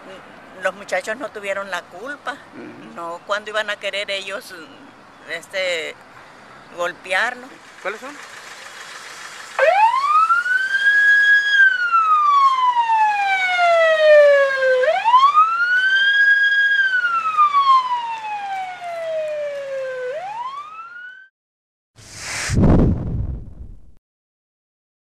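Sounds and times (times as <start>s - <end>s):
ambulance siren wailing: 9.6s - 21.3s
short whoosh: 22.0s - 24.0s.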